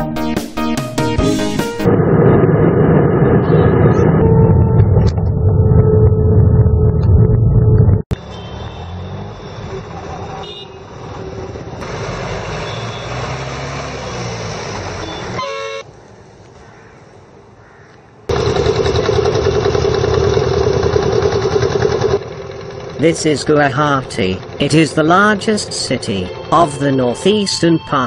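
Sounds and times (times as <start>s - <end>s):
airliner cabin rumble: 1.8s - 8.1s
ferry engine hum: 1.9s - 16.0s, 18.3s - 28.0s
street traffic: 8.0s - 28.0s
vehicle horn honking: 8.2s - 9.3s, 10.4s - 10.9s, 12.5s - 13.3s, 15.0s - 15.8s.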